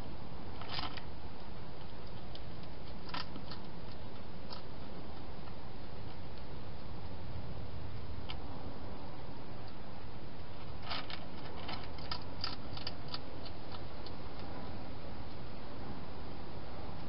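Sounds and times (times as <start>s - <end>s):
background hiss: 0.0s - 17.0s
hedgehog crunching dry food: 0.6s - 1.1s, 1.7s - 6.5s, 10.6s - 14.5s.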